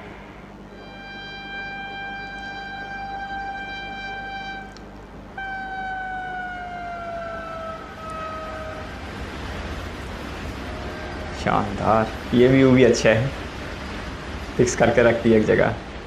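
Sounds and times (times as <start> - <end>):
rush of passing train: 0.0 - 0.9, 5.4 - 16.0
train horn blasts: 0.0 - 15.2.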